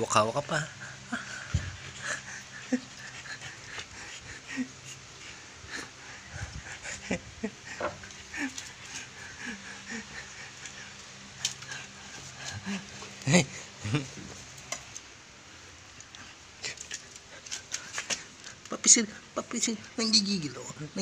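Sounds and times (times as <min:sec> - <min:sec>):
dog panting: 0:00.0 - 0:20.0.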